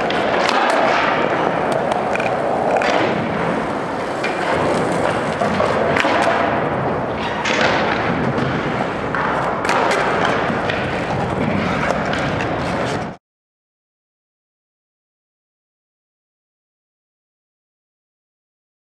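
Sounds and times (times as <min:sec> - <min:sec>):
skateboard clacks and thuds: 0:00.0 - 0:13.2
skateboard wheels rolling on concrete: 0:00.0 - 0:13.2.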